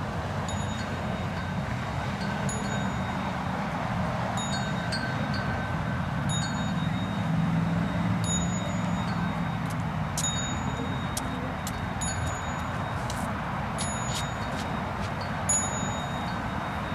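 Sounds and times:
small metal bell ringing: 0:00.5 - 0:03.5, 0:04.3 - 0:16.9.

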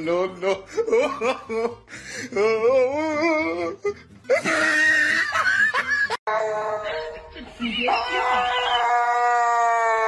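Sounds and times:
wail with wobbling pitch: 0:07.7 - 0:10.0.

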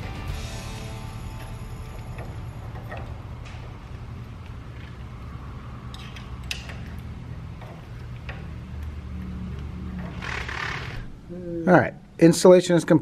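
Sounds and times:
low steady hum: 0:00.0 - 0:10.3.

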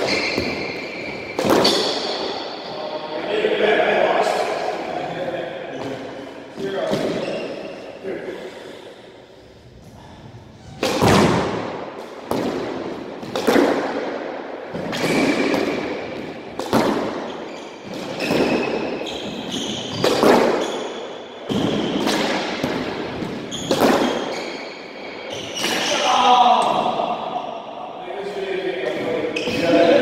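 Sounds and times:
sneakers squeaking on wooden floor: 0:00.0 - 0:02.8, 0:05.7 - 0:08.0, 0:10.6 - 0:11.1, 0:17.0 - 0:22.1, 0:22.7 - 0:26.0, 0:28.9 - 0:29.9
squash ball hitting rackets and walls: 0:00.0 - 0:02.8, 0:05.7 - 0:07.8, 0:10.6 - 0:27.3.

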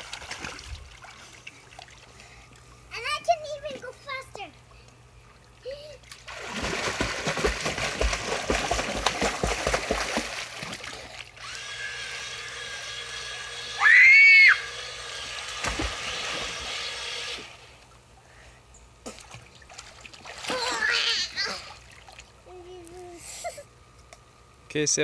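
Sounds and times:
water splashing in a pool: 0:00.0 - 0:02.8, 0:04.5 - 0:18.0, 0:19.0 - 0:22.6
child squealing: 0:13.8 - 0:14.7, 0:20.5 - 0:21.7.

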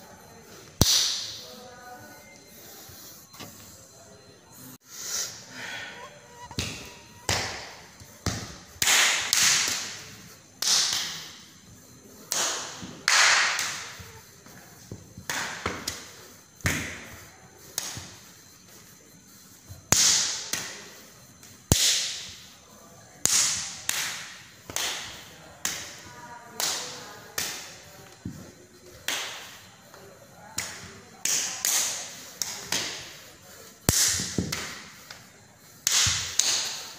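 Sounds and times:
hand slaps: 0:00.8 - 0:01.4, 0:06.5 - 0:10.0, 0:10.6 - 0:11.4, 0:12.3 - 0:14.1, 0:17.7 - 0:18.1, 0:29.0 - 0:29.5, 0:33.9 - 0:34.9, 0:35.8 - 0:36.8.

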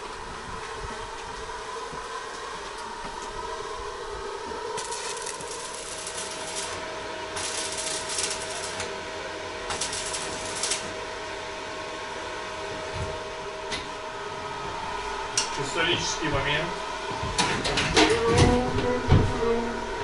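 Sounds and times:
steady mechanical hum: 0:00.0 - 0:20.0
hissing noise: 0:03.3 - 0:06.8.

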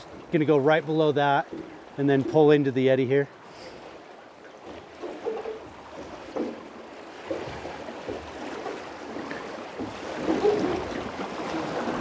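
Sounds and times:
river water splashing and lapping: 0:00.0 - 0:12.0.

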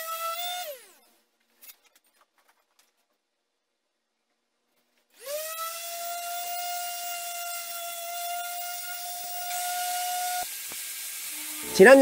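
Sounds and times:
orbital sander whining: 0:05.2 - 0:12.0.

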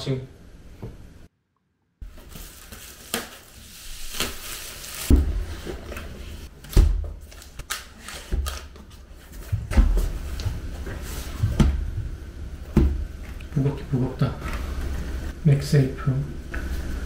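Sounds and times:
plastic wrap crinkling: 0:02.0 - 0:06.5.

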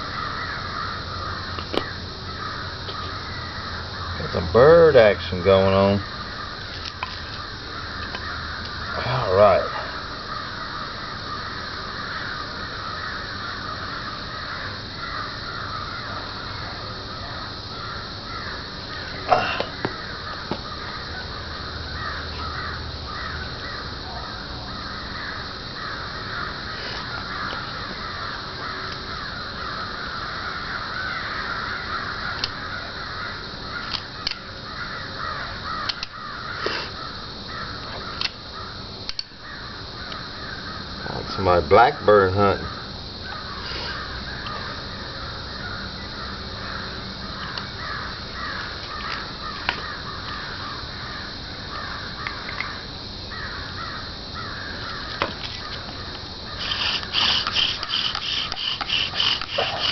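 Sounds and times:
flock of birds calling: 0:00.0 - 0:59.9
sharp clicks: 0:35.8 - 0:36.2, 0:39.1 - 0:39.3.

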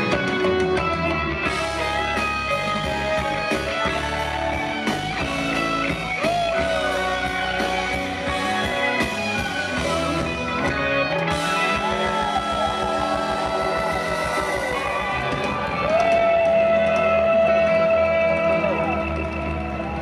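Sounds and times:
electric guitar solo: 0:00.0 - 0:20.0
live rock band playing: 0:00.0 - 0:20.0.

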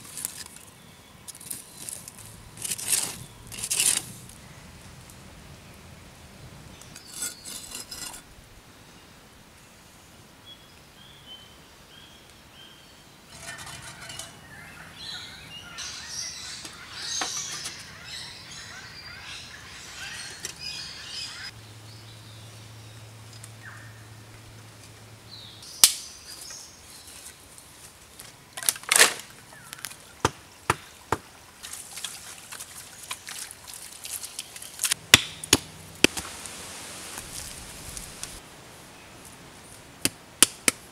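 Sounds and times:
birds chirping: 0:13.3 - 0:24.2.

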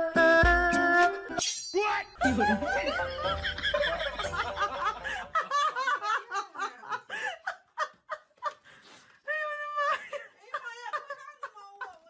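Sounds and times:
person giggling: 0:02.2 - 0:08.6.

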